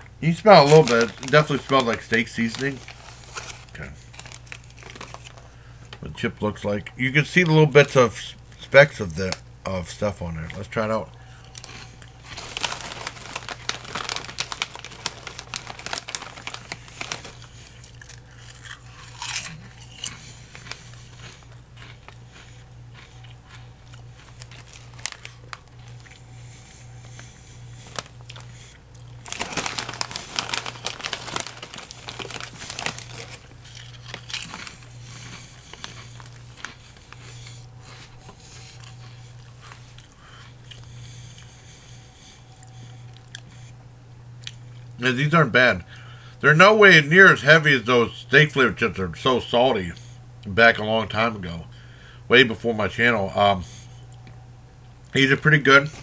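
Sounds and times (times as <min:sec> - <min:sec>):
crunching potato chip: 0:00.2 - 0:05.5, 0:11.3 - 0:41.5
foil bag crinkling: 0:00.2 - 0:06.1, 0:10.0 - 0:41.5.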